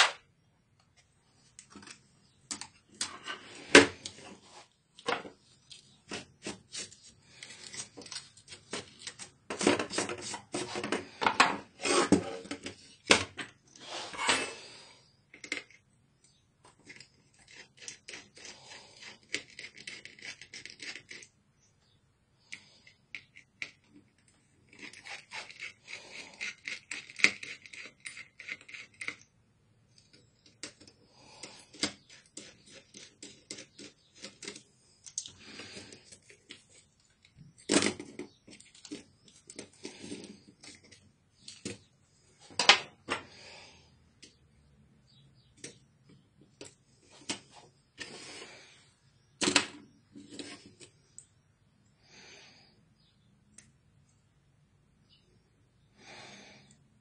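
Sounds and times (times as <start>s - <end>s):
small parts clicking and tapping: 15.3s - 21.4s, 22.5s - 29.3s, 29.9s - 41.8s.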